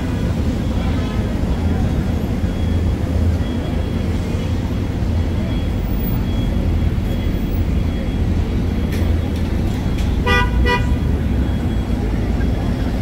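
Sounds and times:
street traffic rumble: 0:00.0 - 0:13.0
car horn toots: 0:10.2 - 0:11.0.

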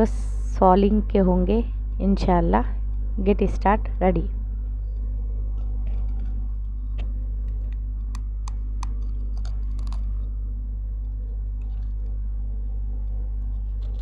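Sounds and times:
low electrical hum: 0:00.0 - 0:14.0
teeth crunching on clay pot: 0:05.0 - 0:10.3.

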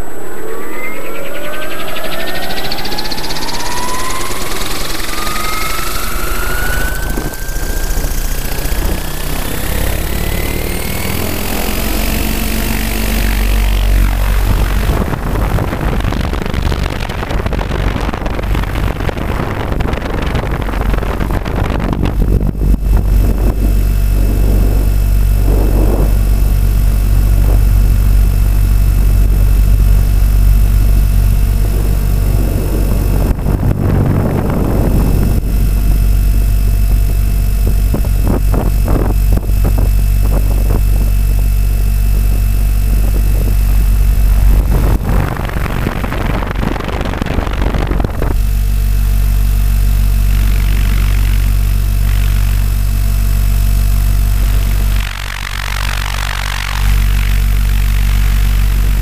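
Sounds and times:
loud rushing noise: 0:00.0 - 0:38.8
model helicopter motor and rotor hum: 0:00.0 - 0:59.0.

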